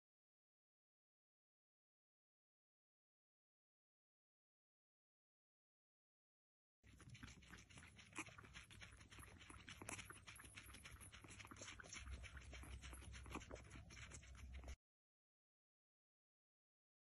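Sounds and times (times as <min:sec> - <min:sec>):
kitten suckling wet clicks: 0:06.9 - 0:14.8.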